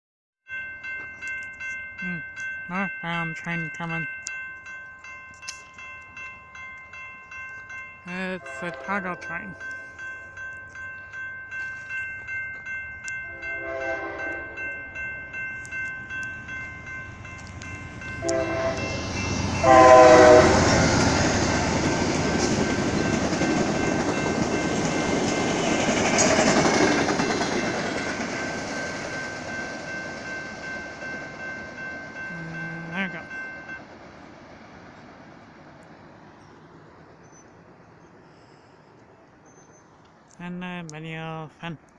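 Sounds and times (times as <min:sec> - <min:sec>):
crossing bell dinging: 0:00.5 - 0:37.4
train horn: 0:08.2 - 0:09.3, 0:13.2 - 0:14.8, 0:18.2 - 0:19.0, 0:19.6 - 0:21.0.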